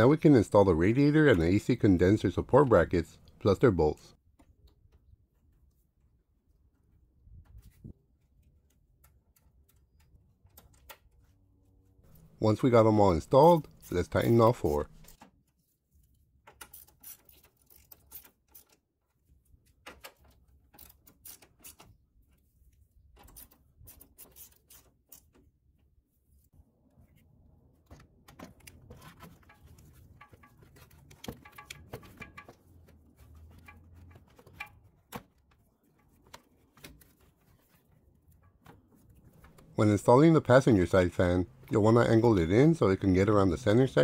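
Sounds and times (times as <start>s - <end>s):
plastic parts knocking and clattering: 27.7s - 39.8s.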